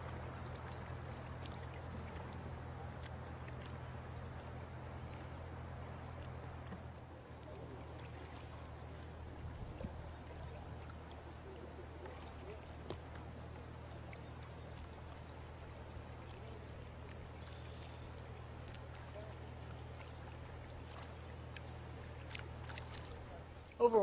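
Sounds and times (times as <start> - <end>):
paddles splashing in water: 0.0 - 24.0
steady low hum: 0.0 - 24.0
small ticks: 12.0 - 23.8.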